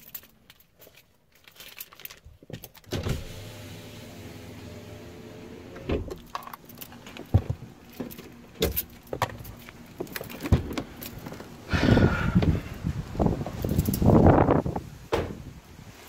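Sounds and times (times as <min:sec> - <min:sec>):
handling clicks and knocks: 0:00.0 - 0:03.0, 0:05.9 - 0:11.6, 0:13.4 - 0:14.2.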